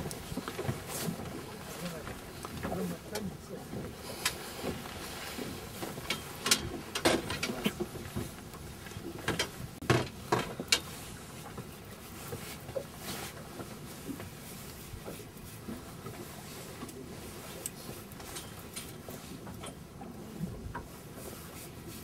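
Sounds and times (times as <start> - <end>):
fishing tackle clicks and knocks: 5.8 - 10.9.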